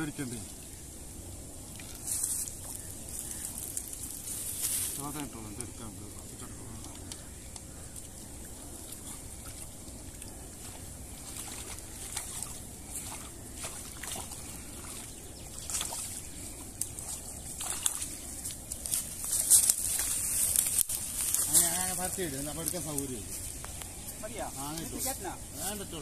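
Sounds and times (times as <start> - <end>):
water sloshing and splashing: 1.6 - 5.0, 7.8 - 21.4.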